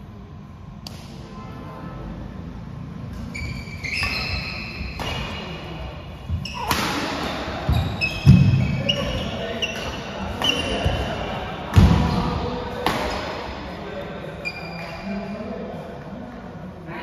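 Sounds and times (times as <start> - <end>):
racket striking shuttlecock: 6.5 - 7.4, 12.8 - 13.4.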